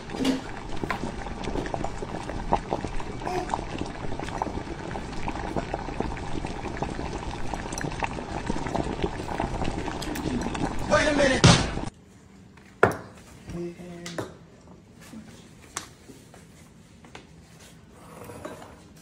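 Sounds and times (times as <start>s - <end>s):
broth boiling with bubbling: 0.0s - 11.9s.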